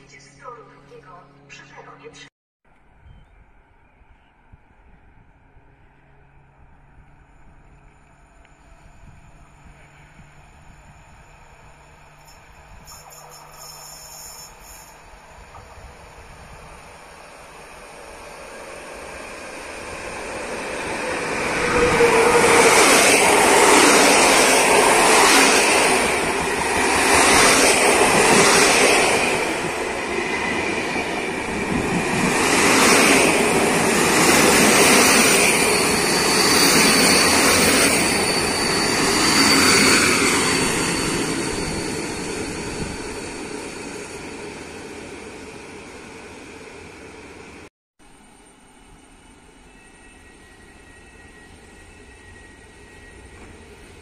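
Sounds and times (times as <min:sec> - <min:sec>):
train rumble and wheel noise: 0:02.9 - 0:54.0
thin high wheel squeal: 0:12.1 - 0:15.0, 0:35.5 - 0:43.0, 0:49.6 - 0:53.8.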